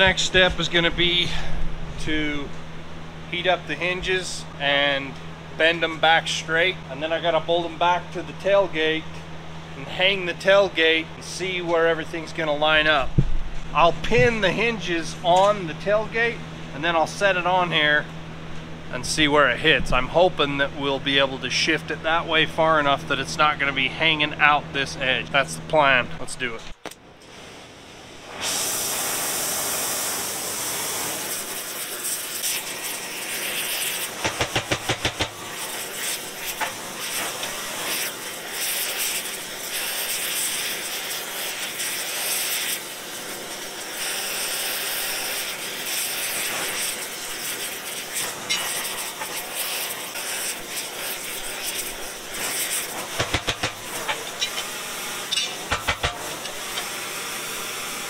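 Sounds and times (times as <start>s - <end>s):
torch flame hissing: 27.1s - 58.0s.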